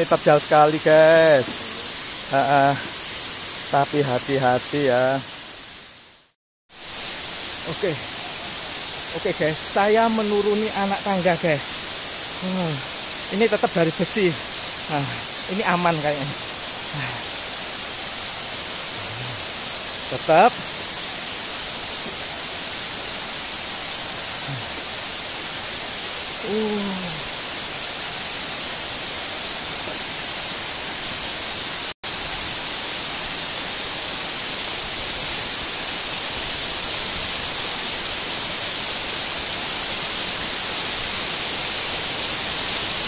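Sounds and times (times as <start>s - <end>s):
waterfall roaring: 0.0s - 3.1s, 7.6s - 31.9s.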